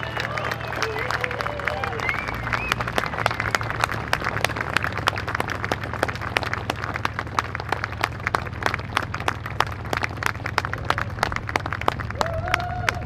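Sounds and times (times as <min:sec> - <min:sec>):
people clapping: 0:00.0 - 0:13.0.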